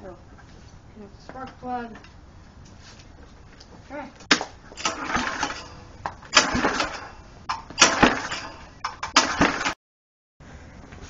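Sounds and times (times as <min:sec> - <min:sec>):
engine turning over: 0:04.7 - 0:07.2, 0:07.8 - 0:09.8
recoil starter cord pulls: 0:04.8 - 0:09.7.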